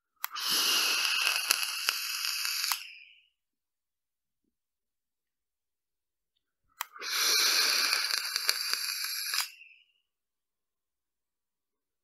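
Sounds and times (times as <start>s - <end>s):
vape coil sizzling and crackling: 0.2s - 3.0s, 7.0s - 9.6s.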